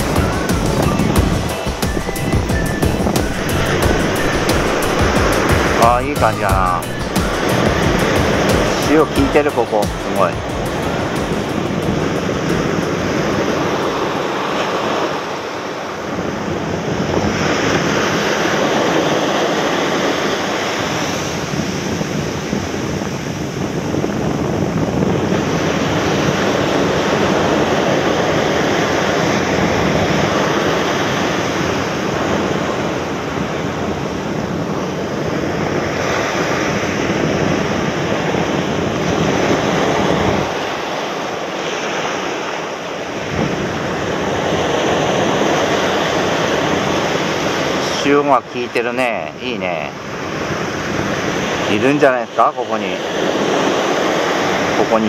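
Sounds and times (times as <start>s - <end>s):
wind buffeting microphone: 0.0s - 47.9s, 50.0s - 51.8s
surf breaking on beach: 0.0s - 55.0s.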